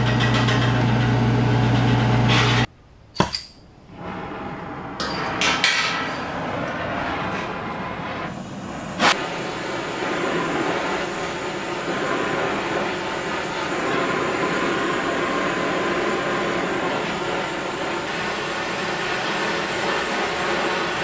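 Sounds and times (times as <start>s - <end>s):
welding torch flame hissing: 6.4s - 21.0s.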